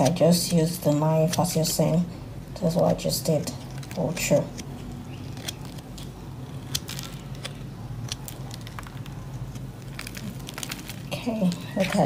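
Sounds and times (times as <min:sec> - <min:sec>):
steady low hum: 0:00.0 - 0:12.0
soap crumbling crackles: 0:03.6 - 0:12.0.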